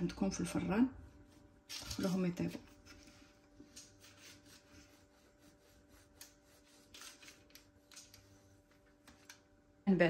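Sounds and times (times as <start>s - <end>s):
knife scoring bread rolls: 3.6s - 8.3s.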